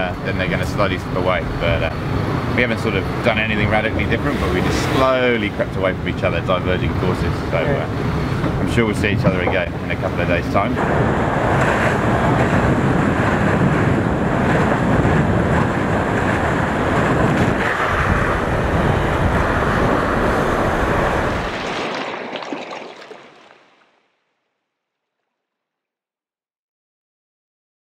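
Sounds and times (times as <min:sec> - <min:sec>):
wind buffeting microphone: 0:00.0 - 0:23.1
water rushing along a hull: 0:00.0 - 0:24.0.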